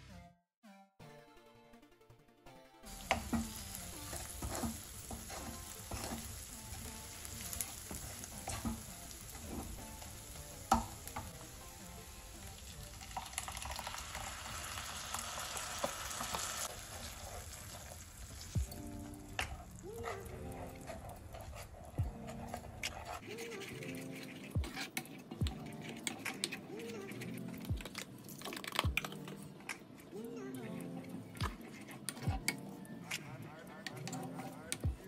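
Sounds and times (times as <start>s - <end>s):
spatula scraping and tapping pan: 2.9s - 11.7s, 18.7s - 28.0s
food sizzling in oil: 2.9s - 21.0s.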